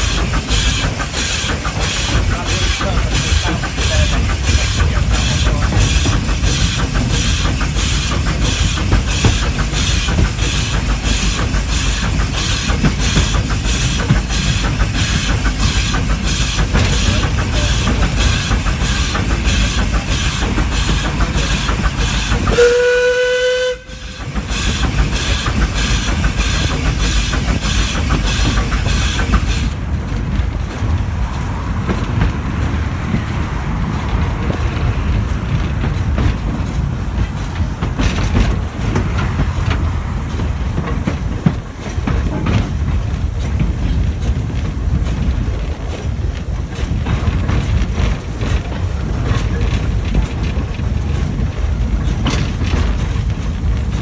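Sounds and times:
steam locomotive exhaust beats: 0:00.0 - 0:54.0
wheels rumbling on rails: 0:00.0 - 0:54.0
steam whistle blast: 0:22.5 - 0:24.2.

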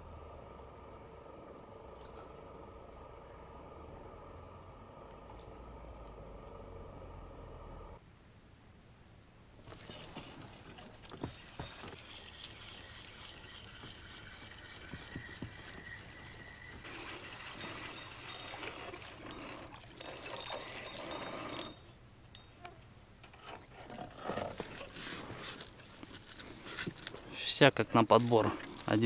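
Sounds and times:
water trickling and splashing: 0:09.6 - 0:21.8.

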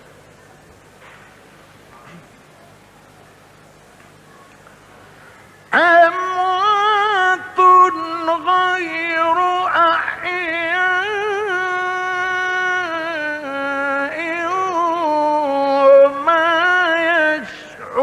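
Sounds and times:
man chanting: 0:05.7 - 0:18.0.

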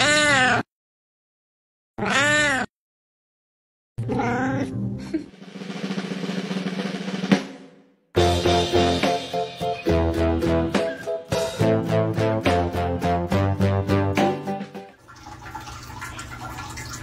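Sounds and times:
cat meowing: 0:00.0 - 0:00.7, 0:02.0 - 0:02.7, 0:04.0 - 0:04.7
water splashing: 0:15.0 - 0:17.0.

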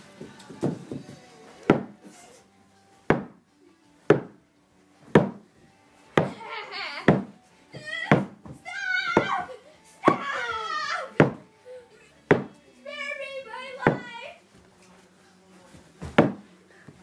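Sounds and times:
sharp smacking thuds: 0:01.6 - 0:02.0, 0:03.1 - 0:03.4, 0:04.1 - 0:04.4, 0:05.1 - 0:05.5, 0:07.1 - 0:07.4, 0:08.1 - 0:09.4, 0:11.2 - 0:11.5, 0:12.3 - 0:12.6, 0:16.0 - 0:16.5
child yelling: 0:07.8 - 0:11.2, 0:12.9 - 0:14.4.

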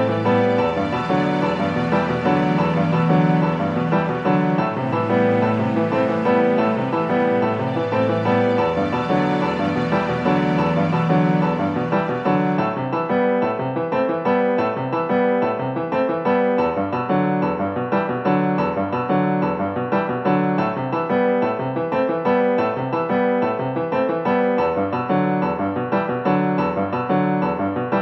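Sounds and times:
background piano music: 0:00.0 - 0:28.0.

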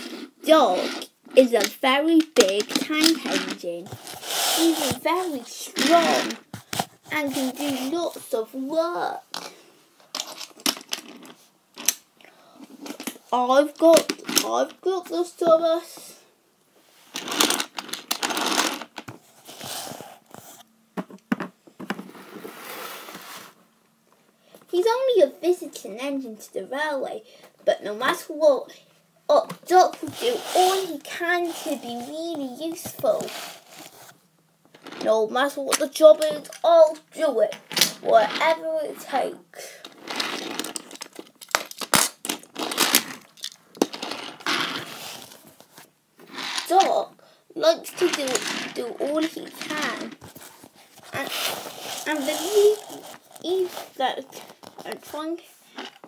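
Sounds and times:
toy train rolling on plastic track: 0:02.4 - 0:06.4, 0:29.7 - 0:31.9, 0:47.8 - 0:50.2, 0:51.2 - 0:53.1
toy train wheels rattling: 0:51.2 - 0:53.1.

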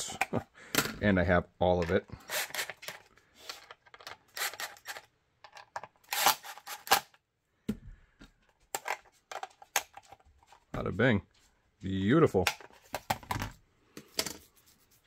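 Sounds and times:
plastic clicks and scrapes: 0:01.8 - 0:07.2.

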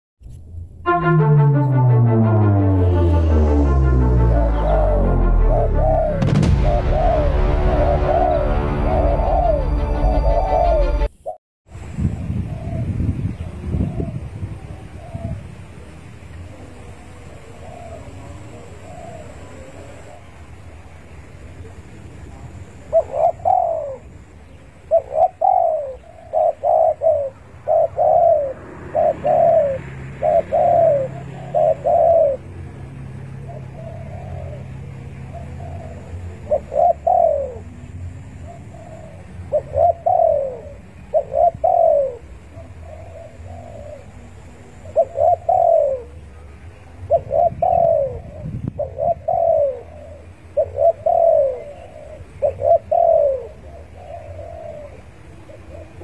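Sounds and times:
dove cooing: 0:22.6 - 0:32.5, 0:33.4 - 0:56.0.

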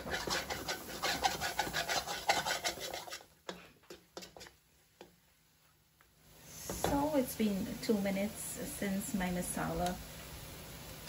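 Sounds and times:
metal spoon scraping a pot: 0:00.0 - 0:04.5.

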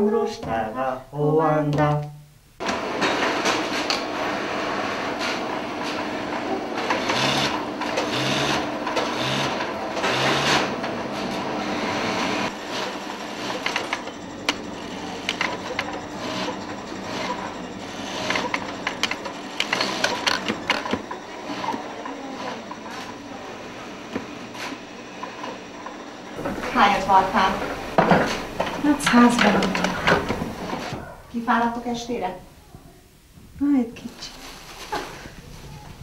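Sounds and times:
sewing machines stitching: 0:02.6 - 0:23.3, 0:26.4 - 0:31.0.

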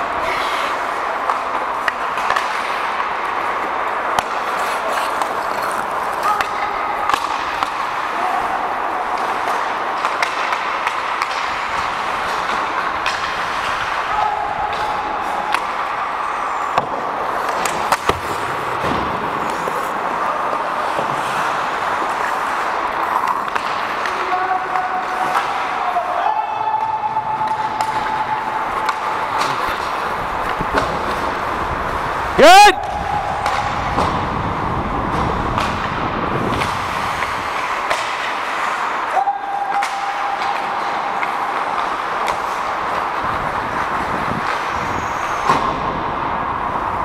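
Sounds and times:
hockey sticks and puck clacking: 0:00.0 - 0:47.0
skates hissing on ice: 0:00.2 - 0:01.1, 0:16.2 - 0:23.2, 0:36.3 - 0:39.0
distant players shouting: 0:06.2 - 0:09.7, 0:13.9 - 0:16.8, 0:24.0 - 0:30.1, 0:32.2 - 0:34.0, 0:39.0 - 0:42.4.

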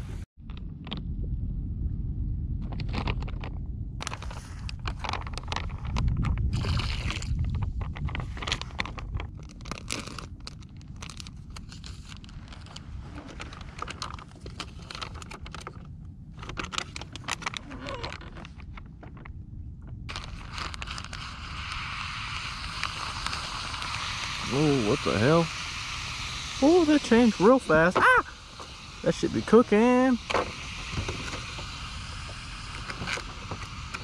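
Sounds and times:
plastic packaging crinkling: 0:04.0 - 0:15.8, 0:16.4 - 0:18.9, 0:20.1 - 0:21.8.

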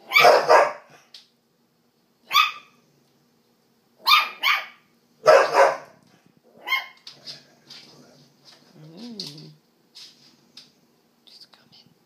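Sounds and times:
dog barking: 0:00.0 - 0:01.0, 0:02.3 - 0:02.8, 0:04.0 - 0:06.0, 0:06.6 - 0:07.0.

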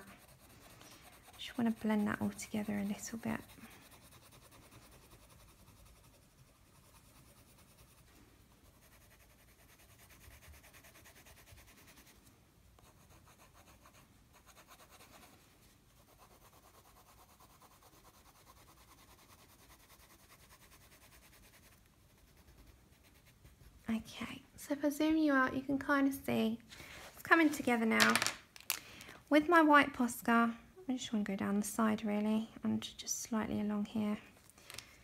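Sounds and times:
pencil scratching on paper: 0:00.0 - 0:12.2, 0:12.8 - 0:23.9.

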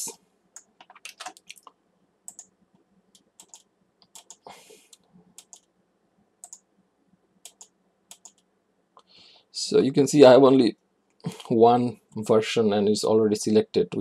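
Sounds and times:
computer keys and mouse clicks: 0:00.6 - 0:01.7, 0:02.3 - 0:02.5, 0:03.1 - 0:05.7, 0:06.4 - 0:06.7, 0:07.4 - 0:08.5.

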